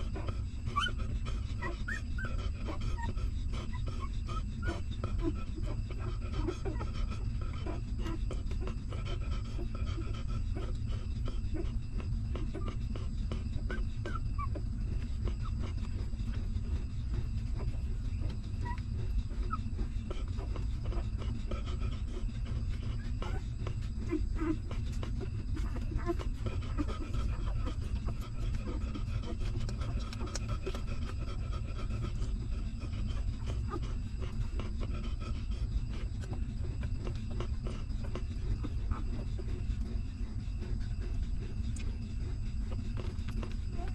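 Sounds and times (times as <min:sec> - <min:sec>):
constant low rumble: 0:00.0 - 0:43.9
puppies suckling: 0:00.0 - 0:43.9
soft squeaks: 0:13.7 - 0:19.7.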